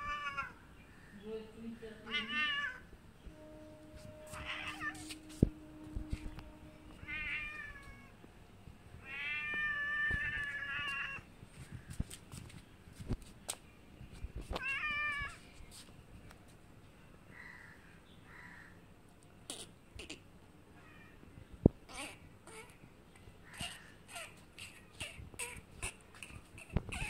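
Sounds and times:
cat meowing: 0:00.0 - 0:00.6, 0:02.0 - 0:02.9, 0:04.3 - 0:05.3, 0:07.0 - 0:08.2, 0:09.0 - 0:11.2, 0:14.6 - 0:15.4, 0:21.9 - 0:22.8, 0:26.6 - 0:27.0.

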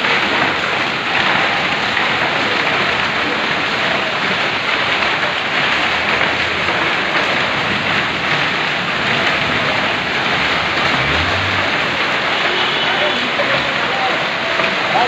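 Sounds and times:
heavy rain and hail: 0:00.0 - 0:15.0
car passing on wet road: 0:06.2 - 0:14.9.

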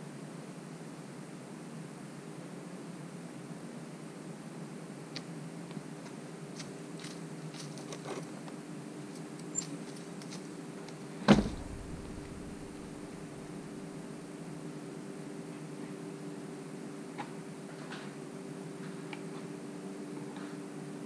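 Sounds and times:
steady low hum: 0:11.0 - 0:17.1
loud wooden thump: 0:11.3 - 0:13.2.

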